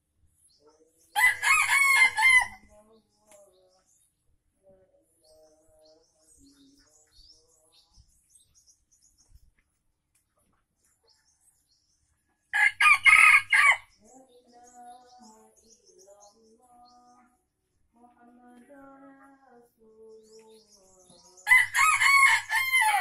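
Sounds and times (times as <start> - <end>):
small birds chirping: 0.0 - 23.0
rooster crowing: 1.2 - 2.6, 12.5 - 13.9, 21.5 - 23.0.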